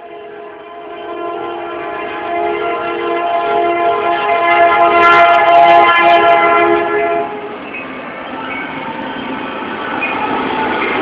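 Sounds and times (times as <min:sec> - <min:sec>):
locomotive air horn chord: 0:00.0 - 0:07.6
locomotive engines passing: 0:00.0 - 0:11.0.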